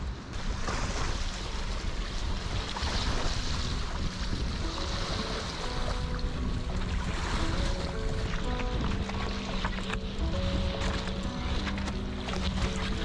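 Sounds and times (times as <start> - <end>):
wind rushing over microphone: 0.0 - 13.0
small waves washing on rocks: 0.4 - 6.5.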